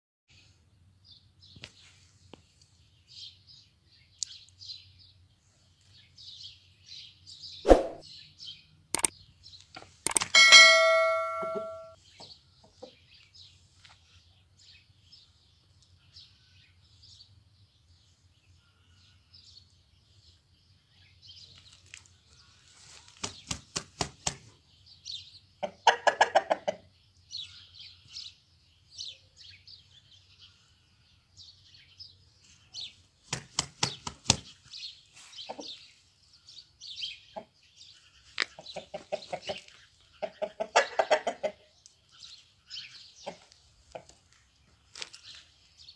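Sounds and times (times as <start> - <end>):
small birds chirping: 0.3 - 45.9
rapid wing-flapping: 23.0 - 24.5, 33.2 - 34.6.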